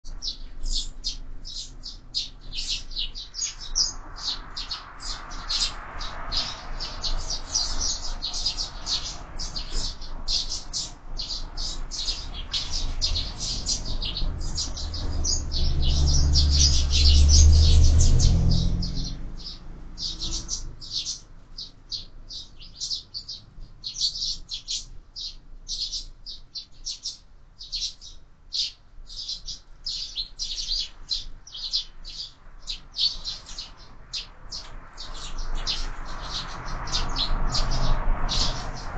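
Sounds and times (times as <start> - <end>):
sparrows chirping: 0.0 - 38.9.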